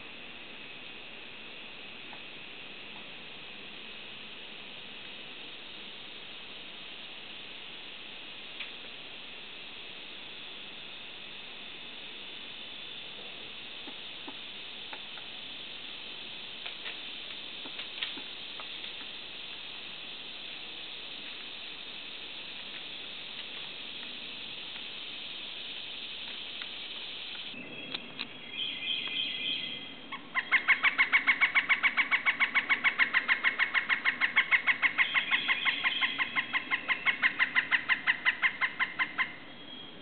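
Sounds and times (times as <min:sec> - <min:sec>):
steady high hiss: 0:00.0 - 0:40.0
woodpecker calling: 0:27.5 - 0:40.0.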